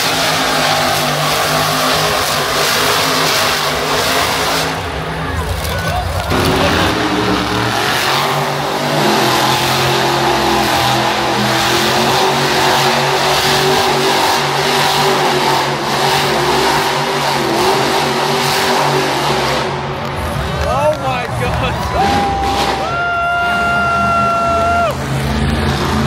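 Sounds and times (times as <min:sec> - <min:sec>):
monster truck engine revving: 0:00.0 - 0:26.0.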